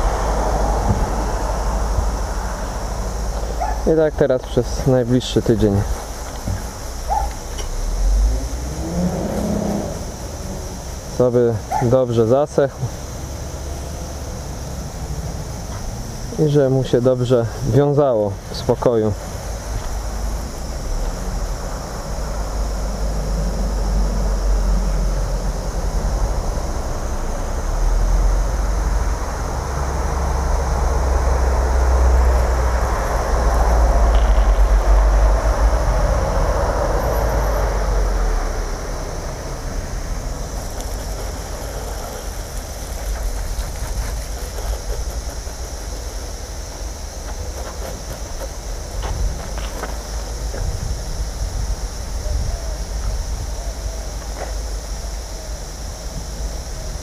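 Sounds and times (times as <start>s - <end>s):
wind buffeting microphone: 0.0s - 3.8s, 50.4s - 53.6s.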